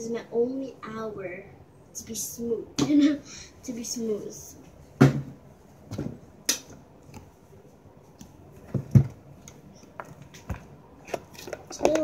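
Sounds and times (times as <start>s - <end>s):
knocks and thumps: 5.0s - 6.2s, 8.6s - 9.2s.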